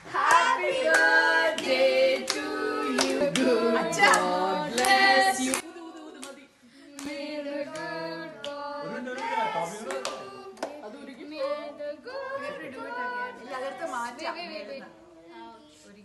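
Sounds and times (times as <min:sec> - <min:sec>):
group singing birthday song: 0:00.0 - 0:15.6
hand claps: 0:03.0 - 0:08.6, 0:09.2 - 0:10.8.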